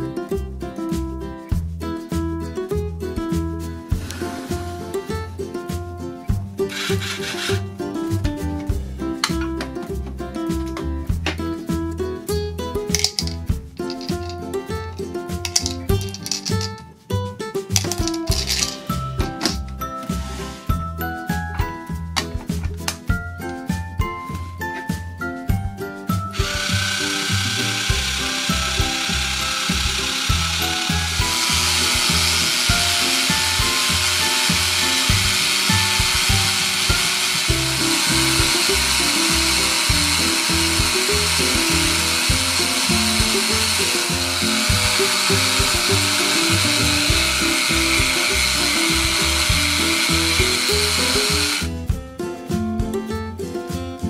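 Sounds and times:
toy blender motor whirring: 0:04.0 - 0:04.7, 0:06.7 - 0:07.6, 0:13.0 - 0:14.3, 0:15.5 - 0:16.7, 0:17.9 - 0:18.8, 0:26.3 - 0:51.7.

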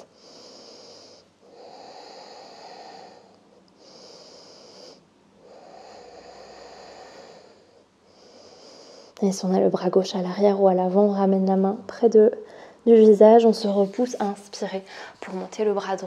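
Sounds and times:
woman breathing slowly: 0:00.0 - 0:09.2, 0:12.4 - 0:12.9, 0:14.8 - 0:15.2.

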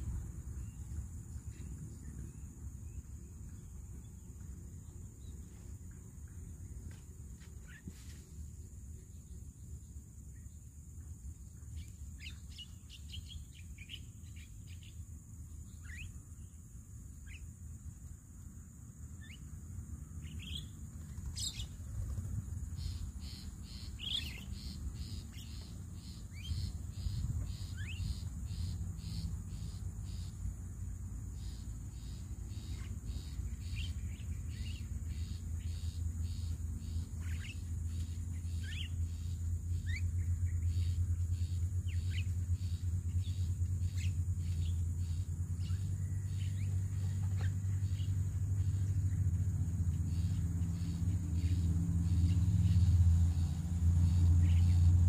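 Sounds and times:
high insect drone: 0:00.0 - 0:55.0
birds chirping: 0:20.2 - 0:55.0.

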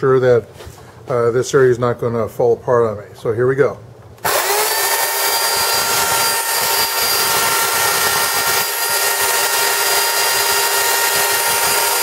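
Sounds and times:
electric chainsaw running: 0:04.2 - 0:12.0.

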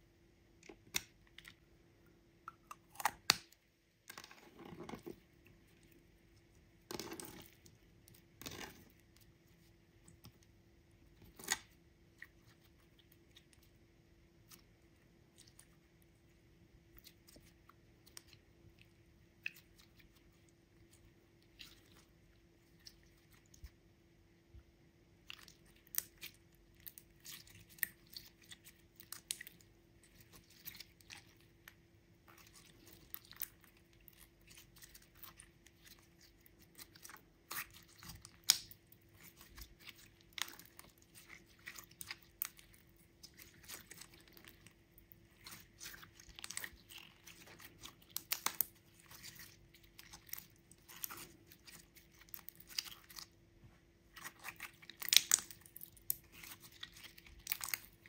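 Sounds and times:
faint steady hum: 0:00.0 - 0:58.0
slime squeezed and kneaded by hand: 0:25.1 - 0:53.4, 0:54.0 - 0:58.0.

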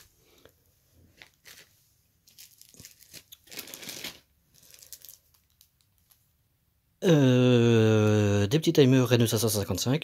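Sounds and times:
plastic bags crinkling: 0:01.0 - 0:06.3.

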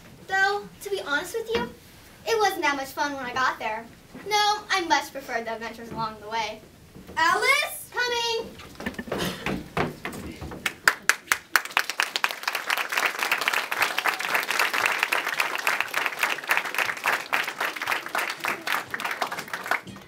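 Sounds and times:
audience applauding: 0:10.6 - 0:20.0.

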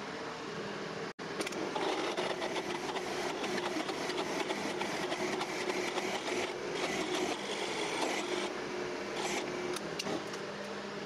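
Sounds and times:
drill press motor hum: 0:01.4 - 0:11.0
drill bit scraping steel: 0:01.8 - 0:08.5.

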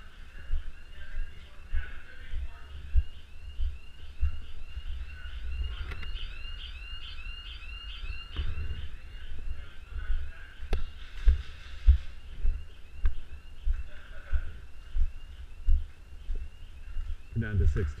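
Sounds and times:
electronic siren yelping: 0:02.8 - 0:10.0.

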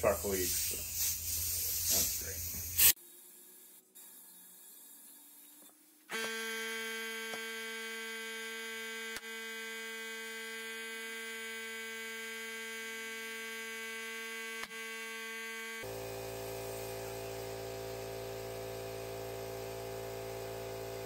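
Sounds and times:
air compressor motor humming: 0:06.1 - 0:21.0.

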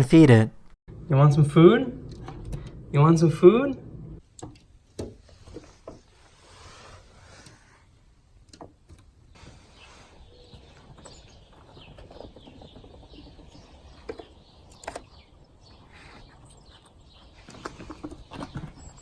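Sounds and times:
faint bird chirps: 0:09.3 - 0:19.0.

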